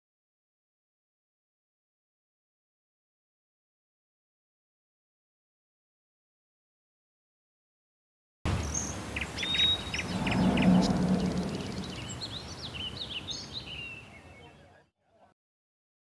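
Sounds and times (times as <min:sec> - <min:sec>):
birds chirping: 0:08.6 - 0:14.7
low background rumble: 0:09.7 - 0:13.1.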